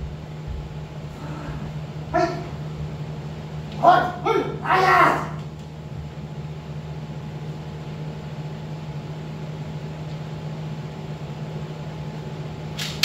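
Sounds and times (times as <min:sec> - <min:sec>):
low hum: 0:00.0 - 0:09.6.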